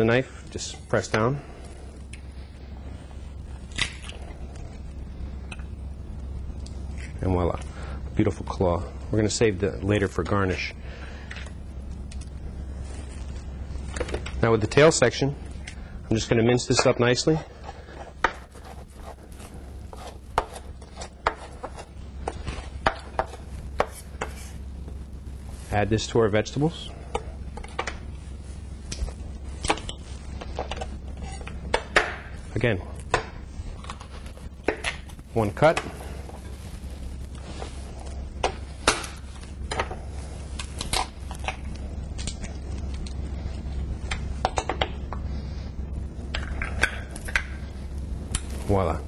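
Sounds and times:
low steady hum: 0.0s - 49.0s
lobster shell cracking: 3.7s - 4.2s, 40.6s - 43.2s.

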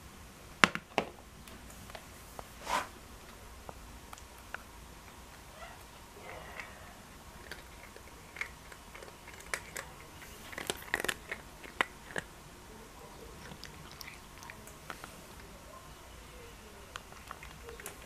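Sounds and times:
cat crunching food: 3.3s - 5.5s, 6.2s - 15.7s, 16.6s - 18.0s.

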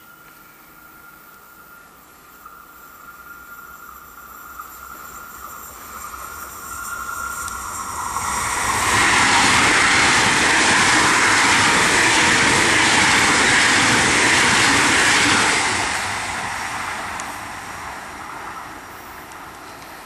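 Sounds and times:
train rushing past: 2.5s - 20.0s.

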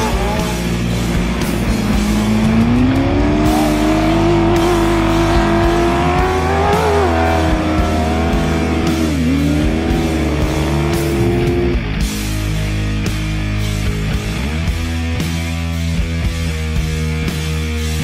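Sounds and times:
truck engine at high revs: 0.0s - 12.3s
background music: 0.0s - 18.0s.

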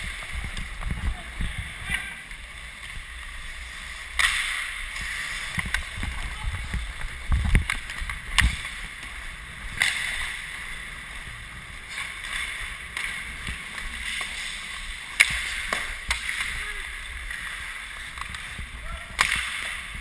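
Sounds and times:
skate blades scraping ice: 0.0s - 20.0s
hockey sticks and puck clacking: 3.7s - 10.9s, 11.8s - 20.0s.

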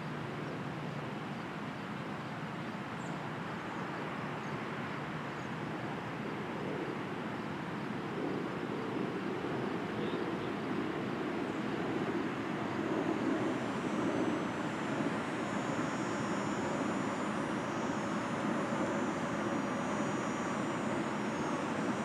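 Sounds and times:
distant aircraft engines rumbling: 7.8s - 22.0s.

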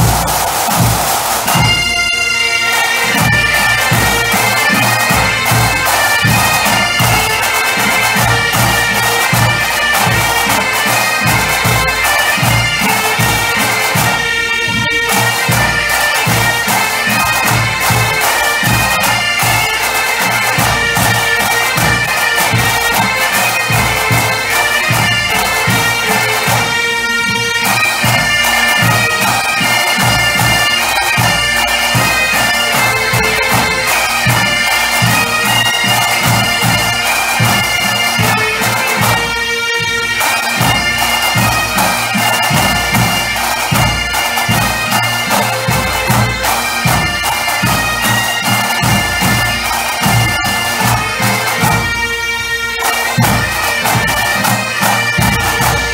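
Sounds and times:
bagpipe band playing: 0.0s - 55.9s
drums beating: 0.0s - 55.9s.

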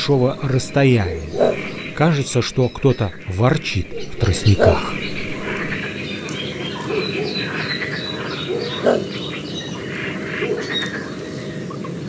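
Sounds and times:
bird grunting call: 0.0s - 5.8s
birds chirping and singing: 0.0s - 9.9s.

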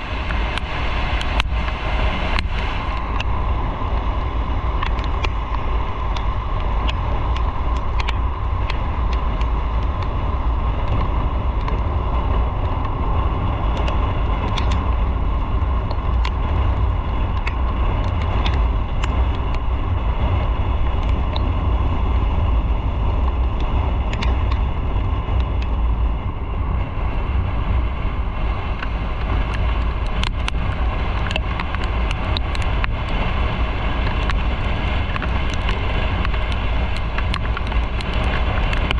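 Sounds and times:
motorcycle engine and road noise: 0.0s - 38.9s
wind rumble on microphone: 0.0s - 38.9s
light ticks: 0.2s - 4.1s, 4.8s - 10.2s, 10.8s - 11.9s, 13.7s - 15.0s, 15.8s - 19.7s, 20.9s - 21.5s, 23.2s - 24.7s, 28.8s - 38.9s.

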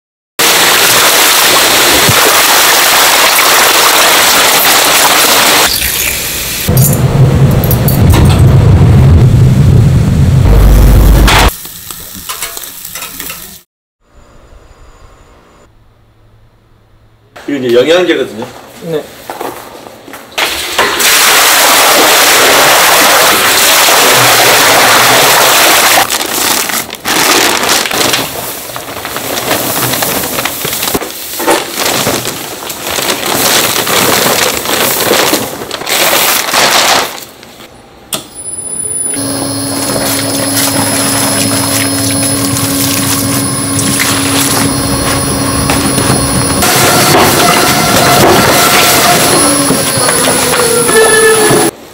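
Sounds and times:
liquid splashing into a vat: 20.4s - 26.7s
mixer motor humming: 39.2s - 50.5s.

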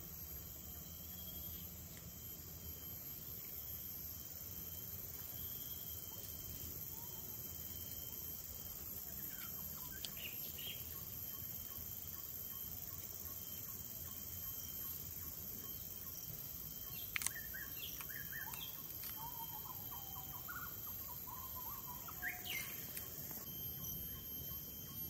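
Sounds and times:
steady outdoor hiss: 0.0s - 25.0s
birds chirping and warbling: 9.1s - 25.0s.

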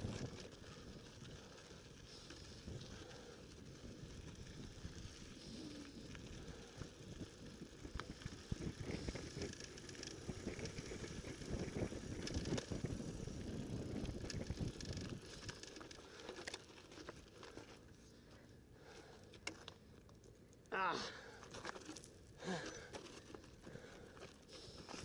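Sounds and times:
bike frame rattling: 0.0s - 17.9s
bike tyres crunching over gravel: 0.0s - 20.4s, 21.1s - 25.0s.

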